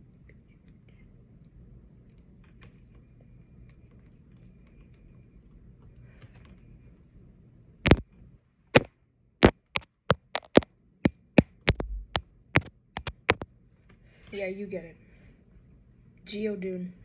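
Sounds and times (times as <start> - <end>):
sharp plastic knocks: 8.8 - 13.4.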